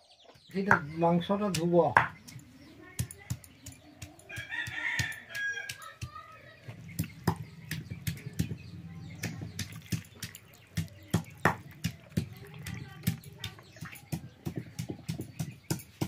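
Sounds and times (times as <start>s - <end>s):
stone pestle knocking on slab: 0.7s - 2.4s, 3.0s - 16.0s
meat handled in steel dishes: 1.0s - 16.0s
rooster crowing: 4.3s - 5.8s.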